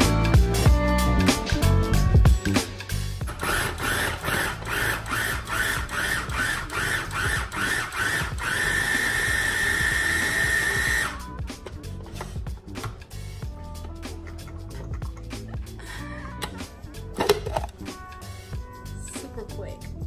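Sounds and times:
electric food chopper chopping: 3.3s - 11.2s.

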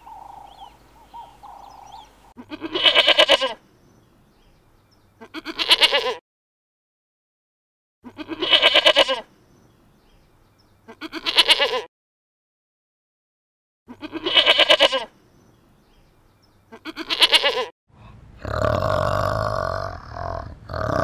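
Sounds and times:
quavering animal bleats: 1.6s - 3.6s, 5.2s - 6.2s, 8.0s - 9.3s, 10.8s - 11.9s, 13.9s - 15.1s, 16.7s - 17.7s
deep guttural grunting call: 18.1s - 21.0s.

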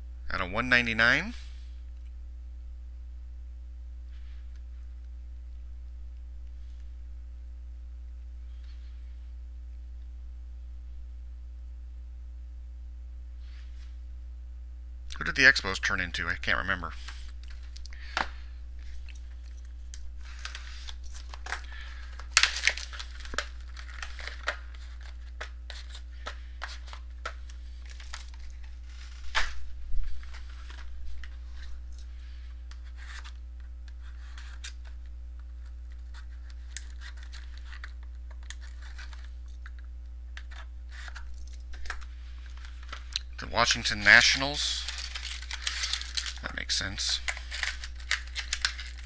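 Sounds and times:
low electrical hum: 0.0s - 49.0s
packaging crinkling and tearing: 17.0s - 49.0s.

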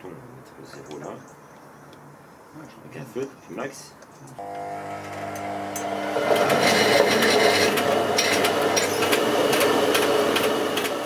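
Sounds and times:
electric motor humming: 4.4s - 11.0s
millstone grinding wheat: 5.0s - 11.0s.

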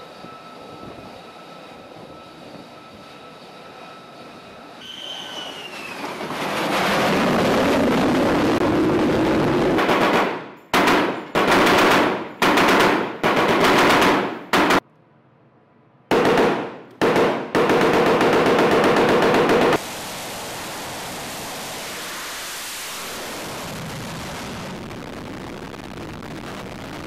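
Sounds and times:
jet engine noise: 0.0s - 14.8s, 16.1s - 27.0s
machine gun automatic fire: 9.6s - 14.8s, 16.1s - 19.8s.

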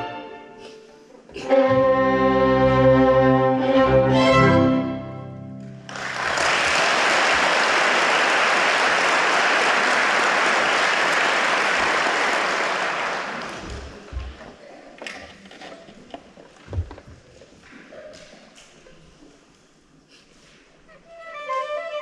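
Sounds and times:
audience applause: 5.8s - 14.1s.

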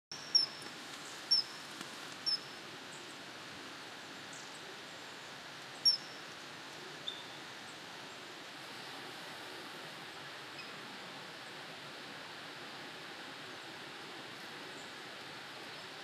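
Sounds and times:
low bird chirp: 0.1s - 2.6s
steady background hiss: 0.1s - 16.0s.

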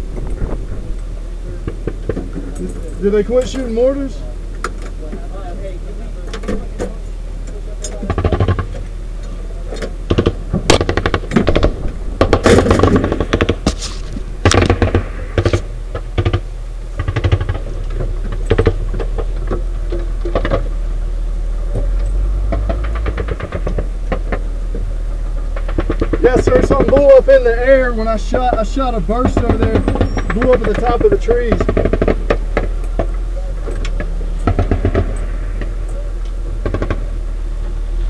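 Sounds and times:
vehicle engine humming: 0.0s - 38.0s
automatic gunfire bursts: 10.1s - 13.8s, 14.4s - 16.4s.

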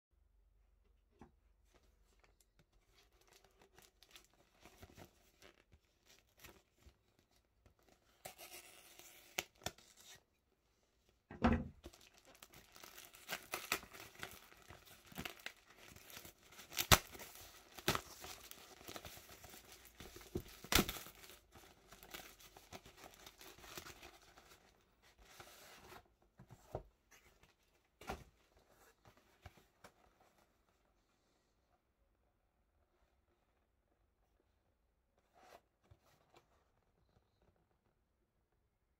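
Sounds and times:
paper crinkling: 11.8s - 26.0s
packing tape ripping: 12.1s - 24.0s.

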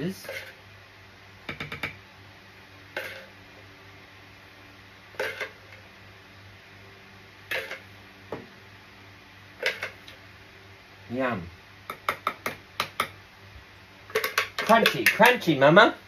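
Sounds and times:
steady low hum: 0.0s - 16.0s
spoon and bowl clinking on glass dishes: 14.1s - 15.5s.

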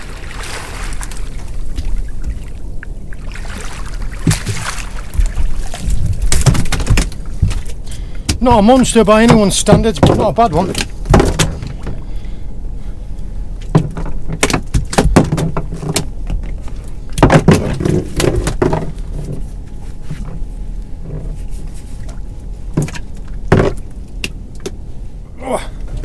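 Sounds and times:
steady low rumble: 0.0s - 26.0s
knocks and thumps in boat hull: 4.2s - 7.7s, 8.3s - 12.0s, 13.6s - 16.5s, 17.2s - 19.5s, 22.7s - 23.9s.

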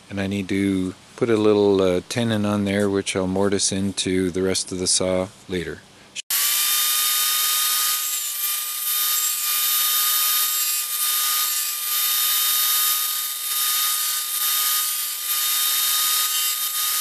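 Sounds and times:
saw blade cutting wood: 6.3s - 17.0s
table saw whining: 6.3s - 17.0s.

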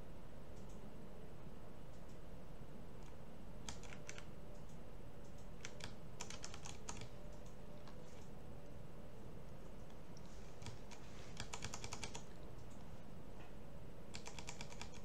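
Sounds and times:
low room hum: 0.0s - 15.0s
computer keys clicking: 0.6s - 0.8s, 3.0s - 8.3s, 9.5s - 12.9s, 14.1s - 15.0s.

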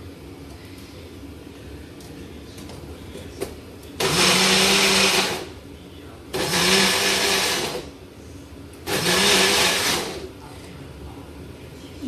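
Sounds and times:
blender motor whirring: 4.0s - 5.5s, 6.3s - 7.9s, 8.8s - 10.3s.

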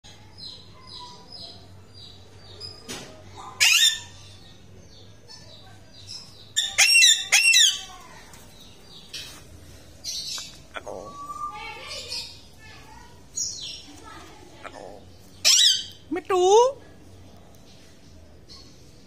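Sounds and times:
parakeets screeching: 3.4s - 4.4s, 6.6s - 8.2s, 10.1s - 16.0s.

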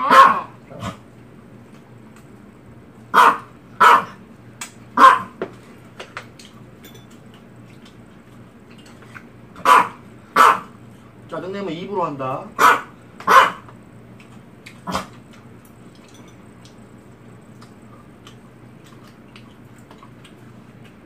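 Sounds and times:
small dog yapping: 0.0s - 1.0s, 3.1s - 4.2s, 5.0s - 5.4s, 9.6s - 10.7s, 12.6s - 13.7s.

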